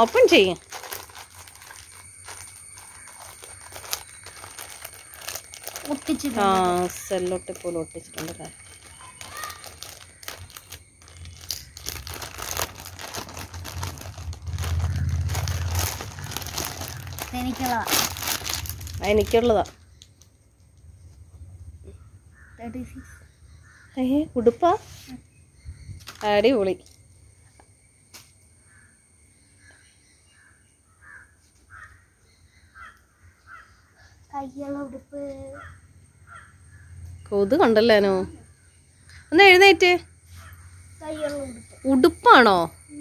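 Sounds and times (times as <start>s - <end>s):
plastic bag crinkling and rustling: 0.0s - 20.3s, 26.0s - 26.4s
crow cawing: 8.6s - 13.3s, 14.7s - 18.8s, 21.9s - 24.0s, 28.7s - 29.0s, 30.4s - 34.5s, 35.4s - 37.0s, 40.3s - 41.4s
low rumble: 9.8s - 19.8s.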